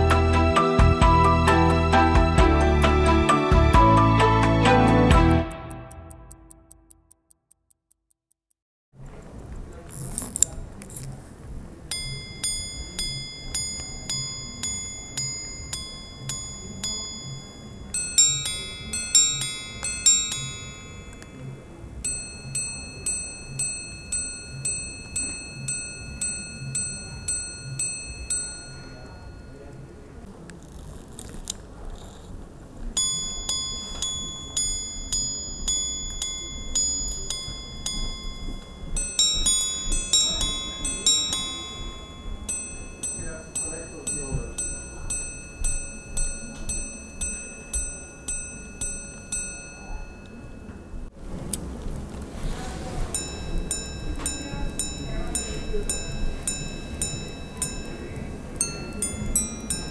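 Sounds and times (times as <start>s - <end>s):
watch chiming high notes: 11.9s - 30.2s, 33.0s - 51.1s, 52.6s - 59.9s.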